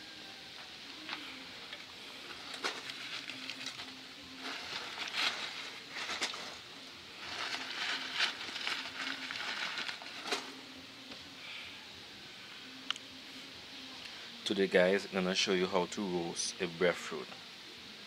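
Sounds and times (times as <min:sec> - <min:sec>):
paper crinkling and rustling: 0:02.3 - 0:06.6, 0:07.2 - 0:10.5.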